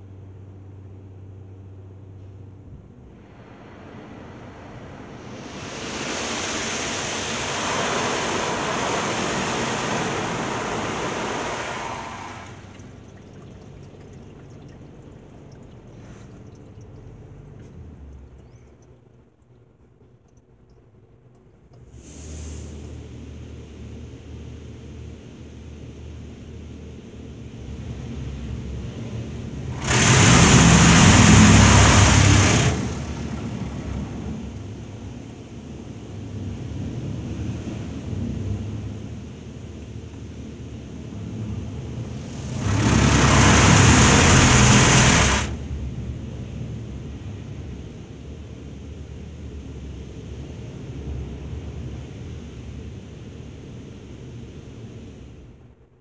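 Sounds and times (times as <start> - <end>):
high-pressure water jets spraying car: 4.7 - 17.7, 29.6 - 34.8, 42.0 - 45.7
low rumble inside car: 9.6 - 26.4.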